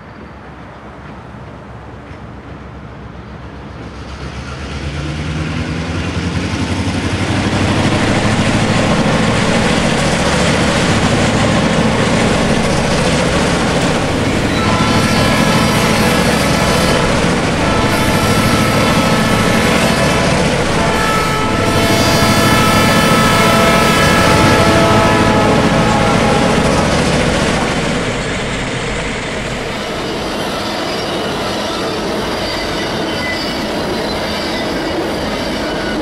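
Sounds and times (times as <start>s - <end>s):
diesel locomotives running: 0.0s - 36.0s
steady high tones: 7.7s - 33.7s.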